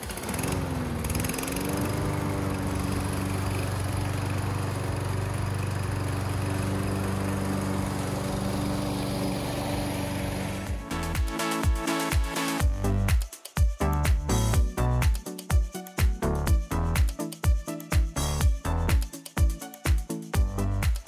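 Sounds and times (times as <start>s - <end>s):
lawn mower engine running: 0.0s - 11.6s.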